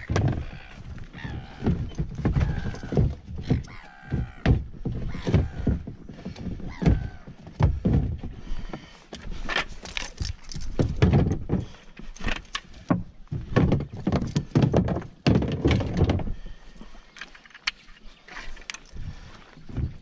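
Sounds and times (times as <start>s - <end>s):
plastic knocks and clunks: 0.0s - 8.9s, 10.6s - 16.4s.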